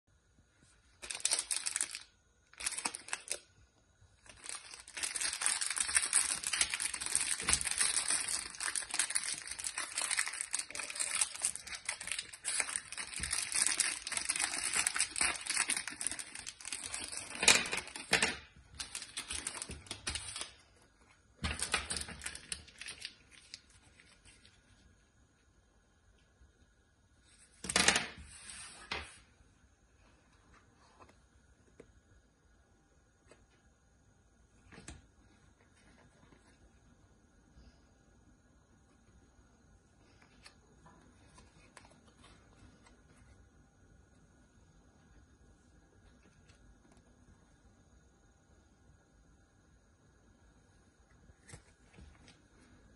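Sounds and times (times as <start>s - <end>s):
foil wrapper crinkling and tearing: 1.0s - 3.5s, 4.2s - 20.6s, 21.4s - 24.4s.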